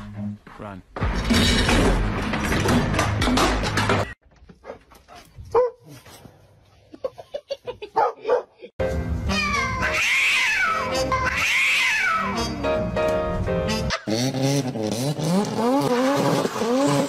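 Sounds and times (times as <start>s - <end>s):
background music: 8.8s - 14.2s.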